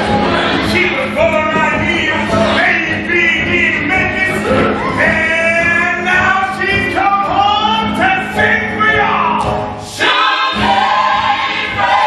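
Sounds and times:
group singing show tune: 0:00.0 - 0:03.1, 0:09.8 - 0:12.0
band accompaniment: 0:00.0 - 0:12.0.

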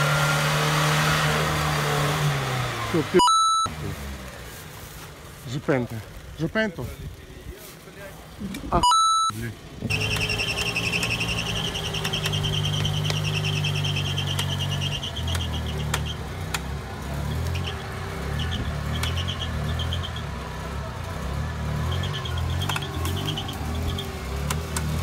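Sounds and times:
engine labouring: 0:00.0 - 0:25.0
sharp clicks: 0:09.9 - 0:17.8, 0:18.5 - 0:19.8, 0:22.4 - 0:25.0.

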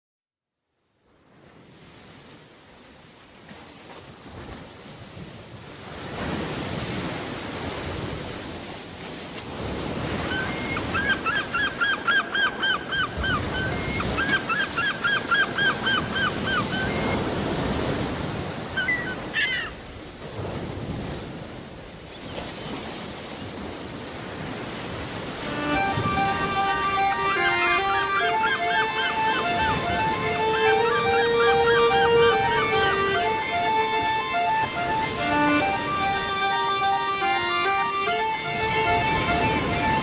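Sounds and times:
bird calling: 0:10.2 - 0:17.3, 0:18.7 - 0:19.8, 0:25.4 - 0:40.0
sea surf washing in: 0:22.8 - 0:40.0.

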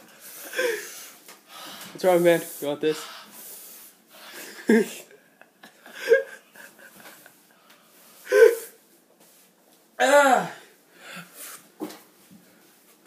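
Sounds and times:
boy crying out in pain: 0:10.0 - 0:10.6.

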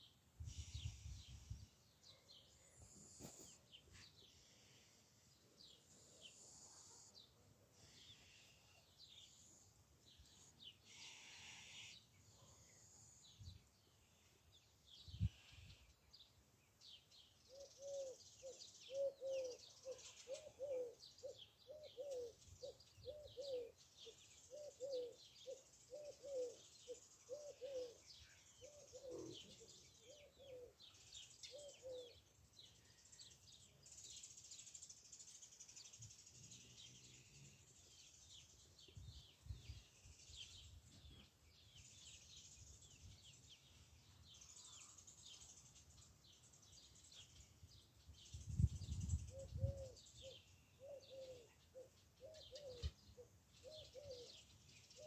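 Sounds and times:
small birds chirping: 0:00.0 - 0:55.0
bird cooing: 0:17.5 - 0:32.2, 0:49.3 - 0:54.4.

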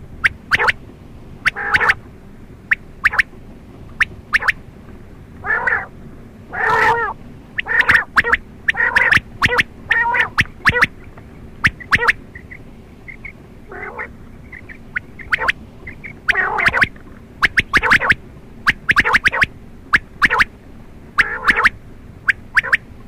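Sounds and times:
quail squawky calls: 0:00.2 - 0:00.8, 0:01.4 - 0:02.0, 0:02.6 - 0:03.3, 0:03.9 - 0:04.6, 0:05.4 - 0:22.9.

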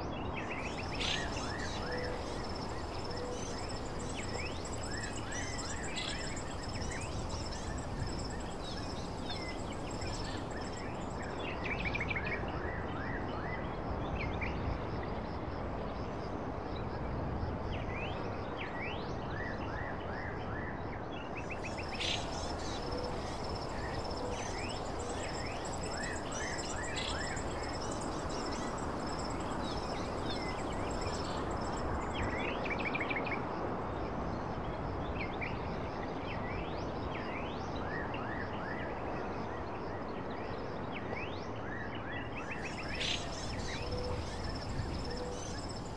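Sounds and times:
small birds chirping: 0:00.4 - 0:11.6, 0:21.4 - 0:32.7, 0:42.5 - 0:45.9.

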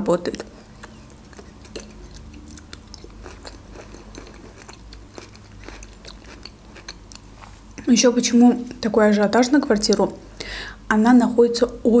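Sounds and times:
person chewing food: 0:00.4 - 0:07.8.

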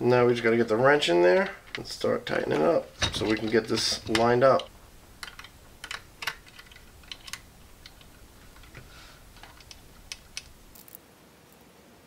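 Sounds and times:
metal clicks of tools on screw: 0:03.0 - 0:08.8.

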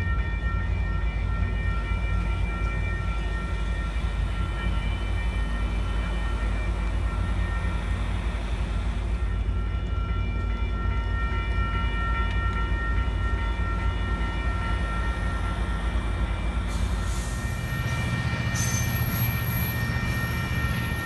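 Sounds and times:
train low rumble: 0:00.0 - 0:21.0
hiss: 0:16.7 - 0:17.6.

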